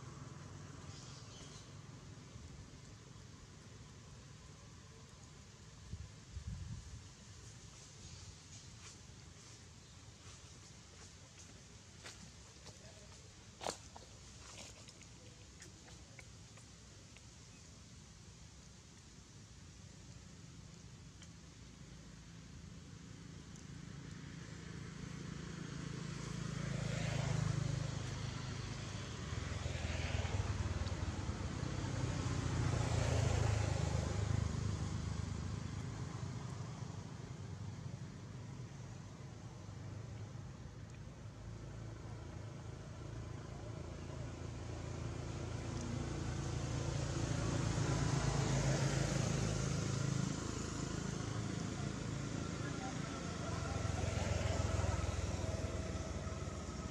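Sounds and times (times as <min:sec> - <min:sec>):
vehicle engine humming: 0:19.9 - 0:56.9.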